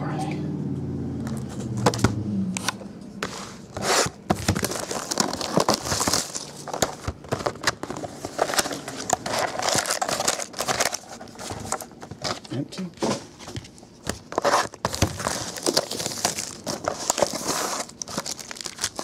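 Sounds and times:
plastic wrap crinkling and tearing: 3.8s - 12.5s, 14.2s - 19.0s.

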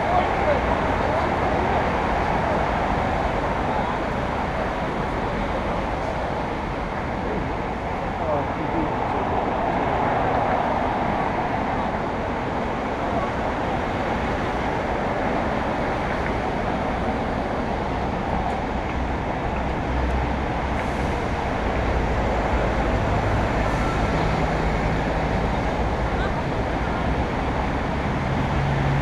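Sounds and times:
noisy background rumble: 0.0s - 29.0s.

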